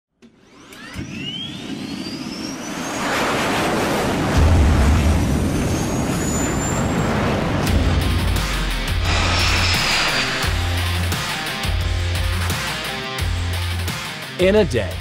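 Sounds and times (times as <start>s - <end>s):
rush of noise: 3.0s - 12.5s
jet turbine whine rising: 5.4s - 12.4s
deep bass notes: 7.7s - 12.5s.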